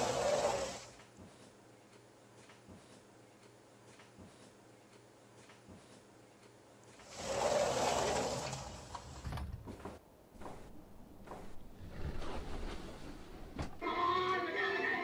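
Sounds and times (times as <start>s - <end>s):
sliding glass door rolling: 0.0s - 0.9s, 7.0s - 9.6s, 11.7s - 13.8s.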